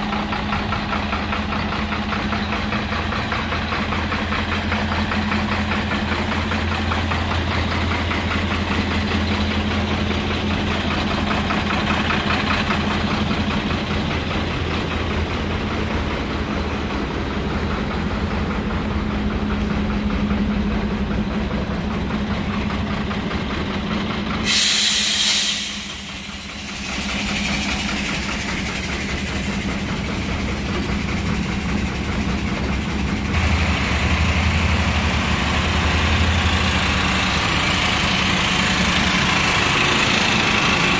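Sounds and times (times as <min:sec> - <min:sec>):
truck diesel engine idling: 0:00.0 - 0:40.9
compressed air hiss: 0:24.4 - 0:27.6.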